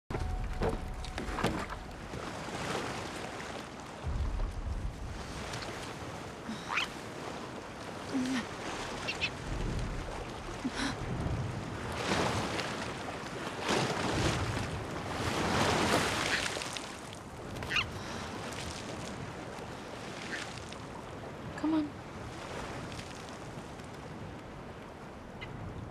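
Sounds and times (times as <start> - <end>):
surf washing against rock: 0.7 - 21.0
gull squawking: 6.6 - 6.9, 9.1 - 9.3, 17.7 - 17.9.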